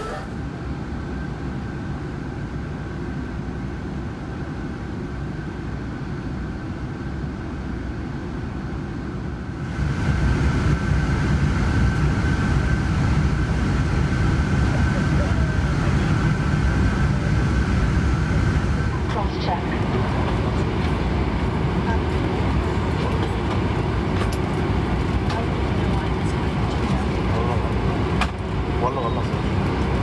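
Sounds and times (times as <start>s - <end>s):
airliner cabin rumble and whine: 0.0s - 30.0s.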